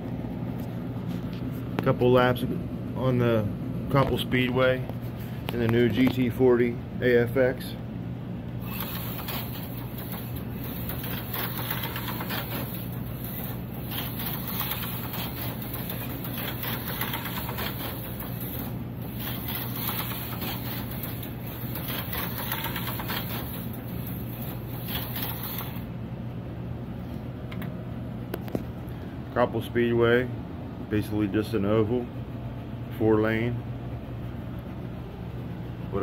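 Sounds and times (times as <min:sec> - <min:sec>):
slot car motor whirring: 0:08.6 - 0:25.9.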